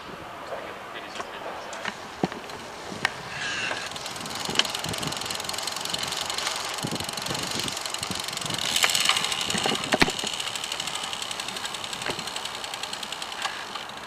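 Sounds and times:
sharp bicycle clicks: 0:01.8 - 0:14.0
bicycle freewheel ticking: 0:02.5 - 0:14.0.

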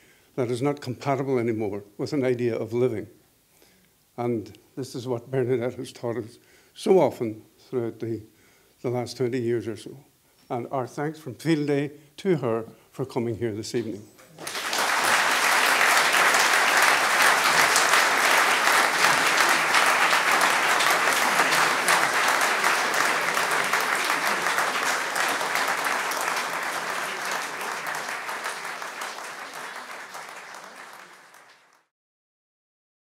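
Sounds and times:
audience applauding: 0:14.4 - 0:31.9.

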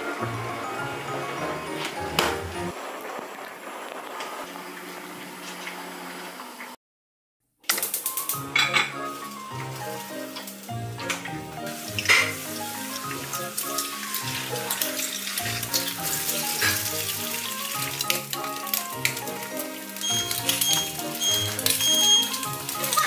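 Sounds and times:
light background music: 0:00.0 - 0:02.7, 0:07.7 - 0:23.0
eggs sizzling in a pan: 0:00.0 - 0:06.5, 0:07.7 - 0:23.0.

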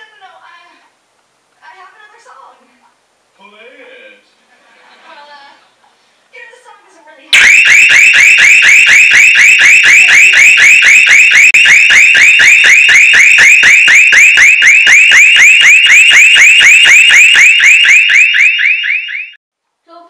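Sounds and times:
electronic alarm warbling: 0:07.4 - 0:19.4.

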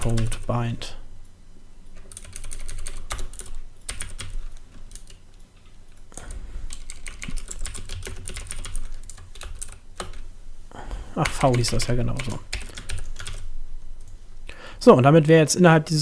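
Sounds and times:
keyboard typing: 0:00.0 - 0:00.5, 0:02.0 - 0:10.2, 0:11.2 - 0:14.2.

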